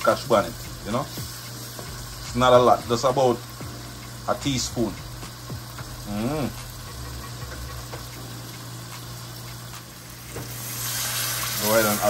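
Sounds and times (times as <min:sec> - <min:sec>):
vegetables sizzling in a wok: 0:00.0 - 0:12.0
person humming: 0:05.8 - 0:06.8.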